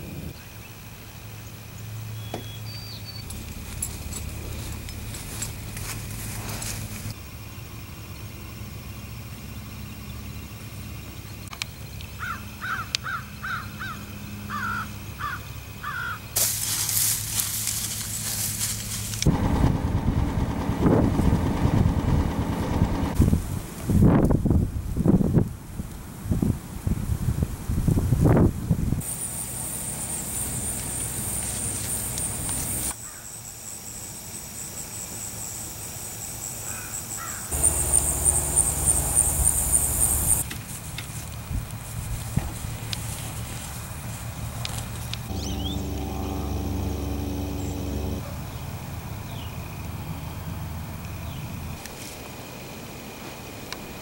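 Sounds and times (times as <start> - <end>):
high-pitched pulsing insect chorus: 0.0 - 19.2, 29.0 - 54.0
crow cawing: 12.2 - 16.2, 36.7 - 37.7
faint bird calls: 12.2 - 16.2
low steady hum: 16.7 - 24.0, 41.9 - 49.1
low wind rumble: 17.6 - 29.1, 37.5 - 40.4, 41.3 - 51.8
wind rushing across microphone: 19.3 - 29.0.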